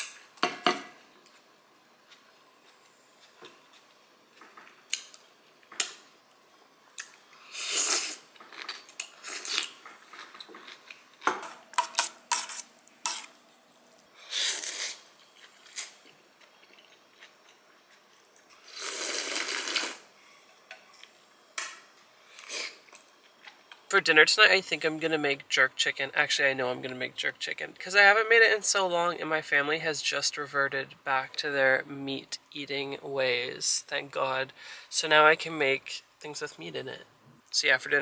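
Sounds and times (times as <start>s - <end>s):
slurping noodles: 7.5s - 8.2s, 14.3s - 15.0s, 18.6s - 20.1s.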